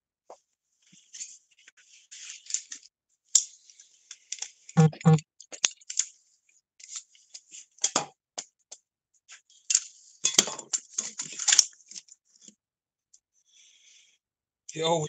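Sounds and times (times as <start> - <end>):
rummaging through small objects: 1.0 - 2.9, 9.6 - 12.2.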